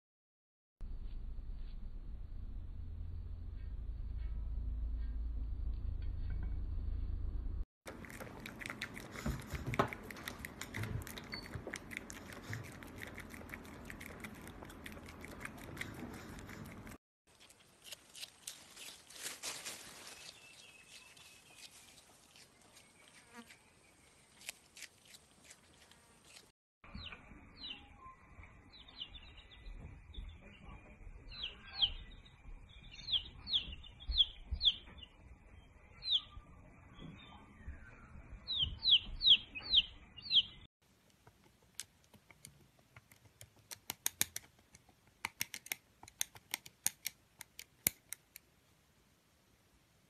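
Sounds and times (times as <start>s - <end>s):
chick peeping: 31.3s - 32.2s, 32.8s - 35.1s, 36.0s - 36.4s, 37.0s - 40.7s
sharp dry clicks: 41.1s - 48.5s.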